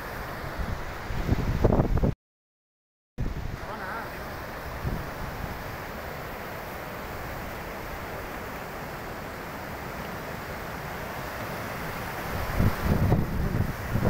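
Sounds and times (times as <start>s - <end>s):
river torrent rushing: 0.0s - 2.0s, 3.2s - 14.0s.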